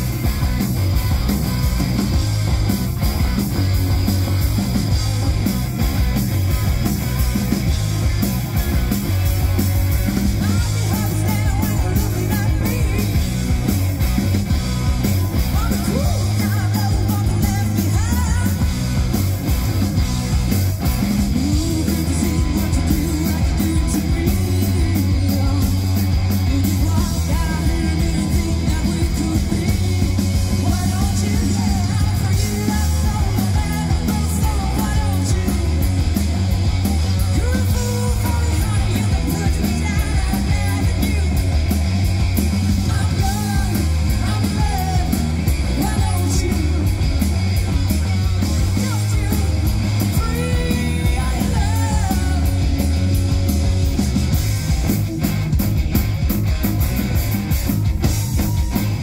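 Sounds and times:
bass guitar: 0.0 - 59.0
drums: 0.0 - 59.0
electric guitars: 0.0 - 59.0
woman singing lead vocals: 10.2 - 13.6, 15.4 - 18.9, 21.3 - 36.1, 37.0 - 41.6, 42.7 - 47.2, 48.5 - 52.8.

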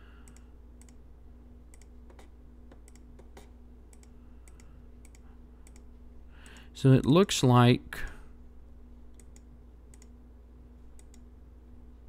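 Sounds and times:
low electrical hum: 0.0 - 12.0
computer mouse clicks: 0.2 - 1.0, 1.7 - 6.7, 9.1 - 10.2, 11.0 - 11.3.

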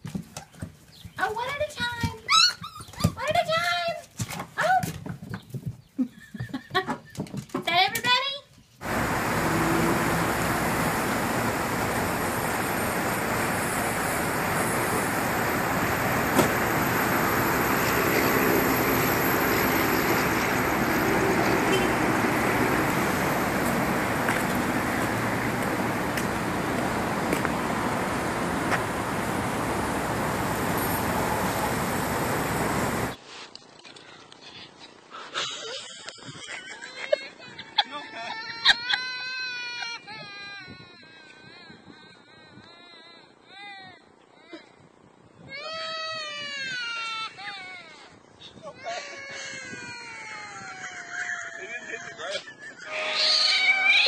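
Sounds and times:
road traffic roar: 8.8 - 33.2.

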